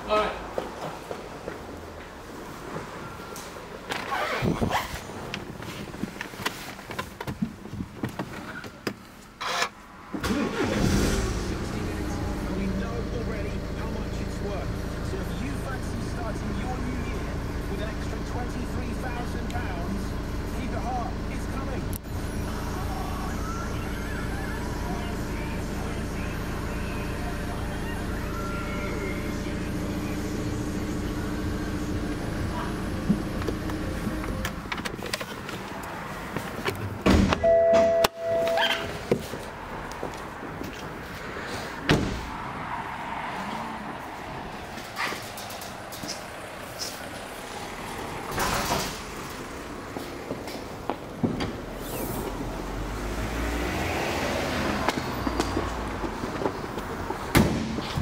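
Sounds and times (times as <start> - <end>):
diesel engine idling: 9.8 - 37.6, 38.2 - 57.8
car bonnet slamming: 37.0 - 39.2, 41.8 - 42.3, 57.3 - 58.0.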